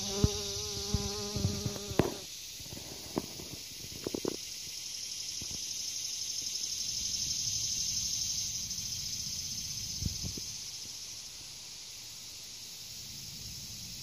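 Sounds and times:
bumblebee buzzing: 0.0 - 2.2
high insect chorus: 0.0 - 14.0.

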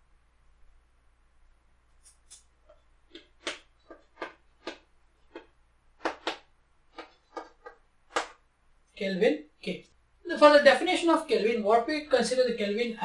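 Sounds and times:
chalk tapping and scratching: 2.0 - 8.4.

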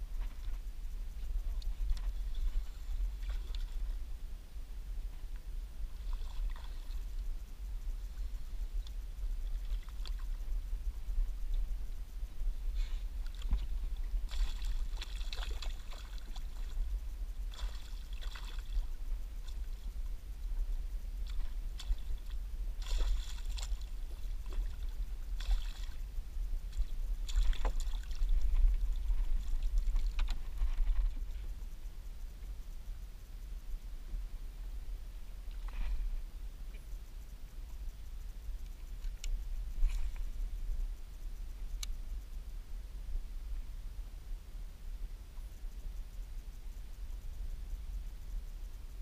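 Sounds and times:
wind on microphone: 0.0 - 33.0
fish splashing and thrashing water: 13.2 - 16.8, 17.4 - 19.8, 21.2 - 26.0, 26.7 - 31.2.

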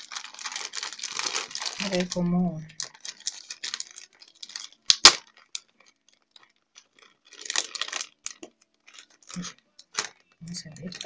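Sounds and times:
plastic packaging crinkling: 0.0 - 11.0
sharp plastic snaps: 4.5 - 5.7.

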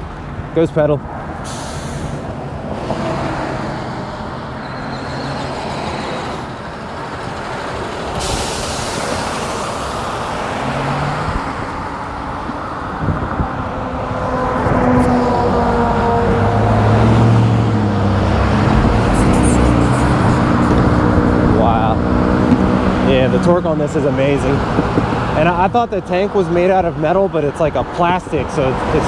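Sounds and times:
road traffic passing: 0.0 - 29.0
truck passing: 0.0 - 29.0.

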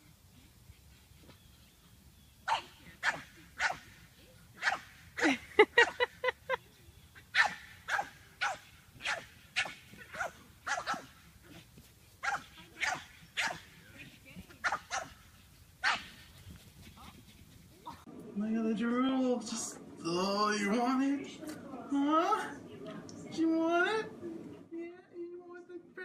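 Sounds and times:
puppy barking: 2.5 - 4.0, 4.6 - 4.9, 7.4 - 11.1, 12.2 - 13.6, 14.6 - 15.2, 15.8 - 16.1.

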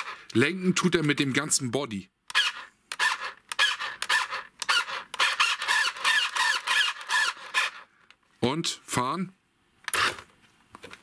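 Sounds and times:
toy car steering motor whining: 2.3 - 7.9.

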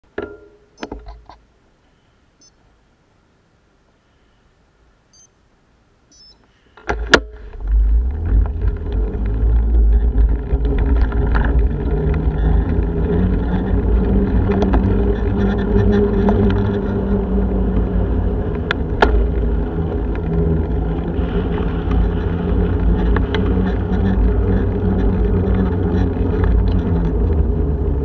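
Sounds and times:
bicycle riding on wet tarmac: 7.4 - 28.0
wind buffeting microphone: 7.4 - 28.0.

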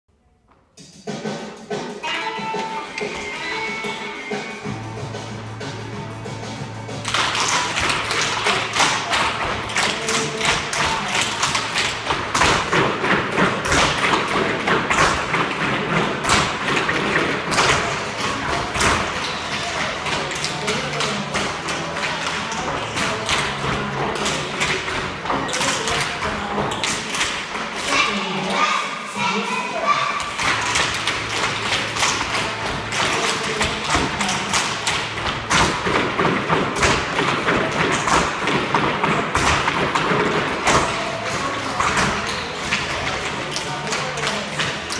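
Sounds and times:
music with vocals: 0.6 - 44.9.

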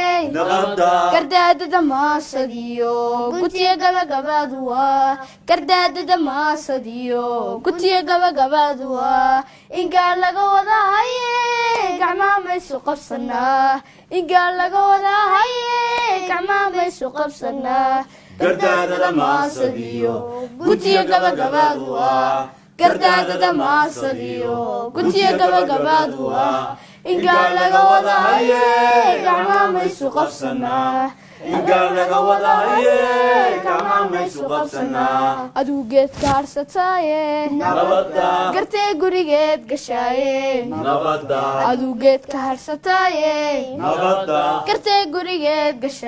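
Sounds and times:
woman singing: 0.0 - 21.9, 22.7 - 26.4, 27.0 - 40.9, 41.6 - 43.9, 44.6 - 46.0
group of voices chanting: 25.0 - 35.5.

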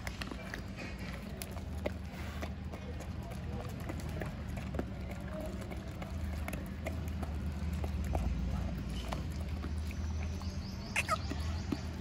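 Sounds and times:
dogs crunching dry kibble: 0.0 - 12.0.

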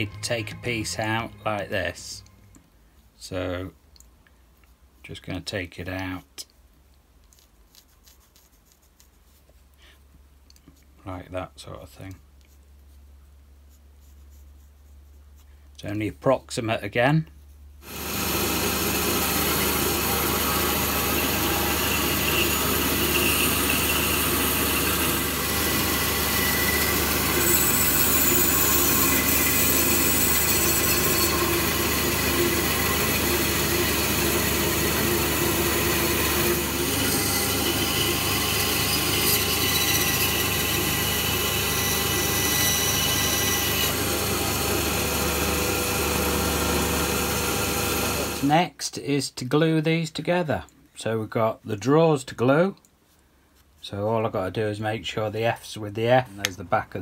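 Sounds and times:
bandsaw cutting wood: 17.8 - 48.5.

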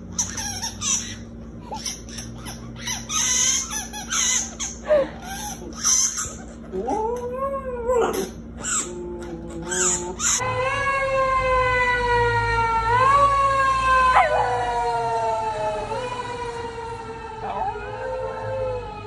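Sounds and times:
dog howling: 4.4 - 10.4, 12.9 - 19.0
siren wailing: 9.4 - 19.0.

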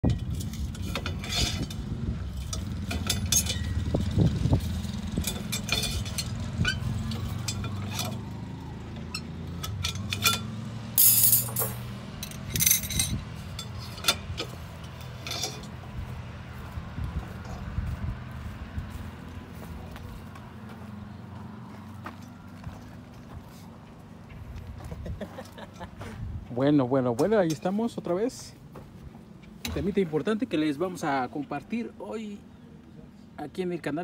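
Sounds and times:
metal clatter: 0.0 - 15.8
metallic clinks and rattles of rebar: 0.0 - 16.3, 26.6 - 28.5
steady low rumble: 11.6 - 20.4.

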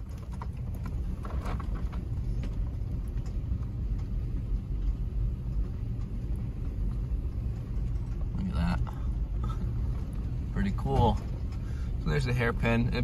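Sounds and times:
faint ticks of loose stones: 0.0 - 13.0
tyres and drivetrain rumbling: 0.0 - 13.0.

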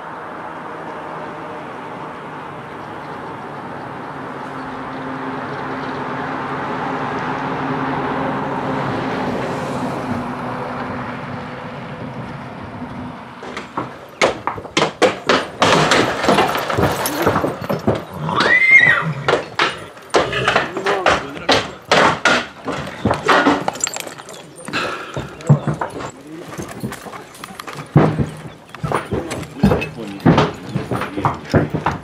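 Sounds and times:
sharp knocks: 13.4 - 18.2, 19.3 - 32.0
horse whinnying: 13.6 - 21.9.

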